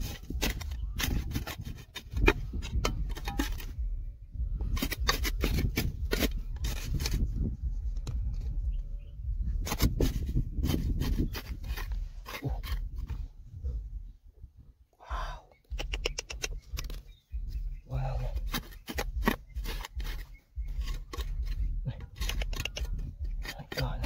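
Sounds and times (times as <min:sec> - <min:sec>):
hand tool digging stony ground: 0:00.0 - 0:04.0, 0:04.6 - 0:08.6, 0:09.4 - 0:13.4, 0:15.7 - 0:24.0
low rumble: 0:00.0 - 0:24.0.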